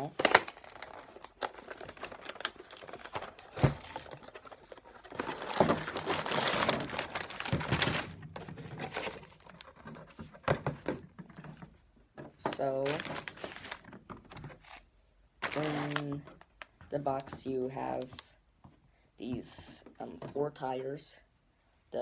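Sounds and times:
plastic bags crinkling: 0.0s - 10.0s, 12.4s - 14.8s, 15.4s - 17.3s
cardboard box opening: 0.1s - 11.0s.

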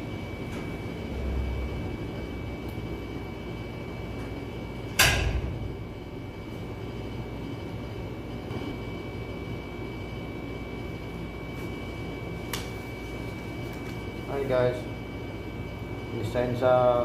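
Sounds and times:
high whine: 0.0s - 15.1s
low machinery hum: 0.0s - 17.0s.

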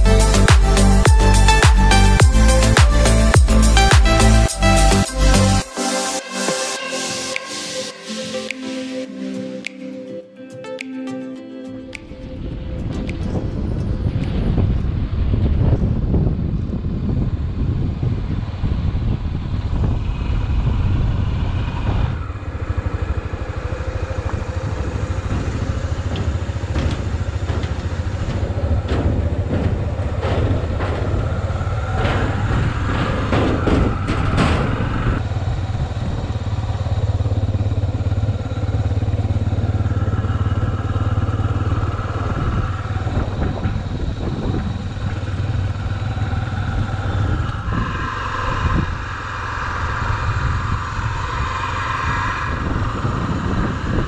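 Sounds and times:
motorcycle engine running: 0.0s - 5.5s, 12.4s - 54.0s
wind rushing over microphone: 12.2s - 54.0s
clattering knocks on steel bridge: 25.2s - 35.2s.

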